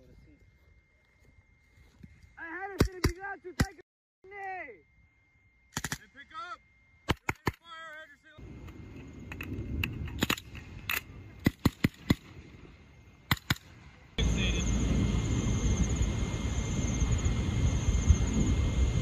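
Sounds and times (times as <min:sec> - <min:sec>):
rifle shots: 0:05.7 - 0:06.1, 0:10.1 - 0:12.6, 0:13.2 - 0:13.9.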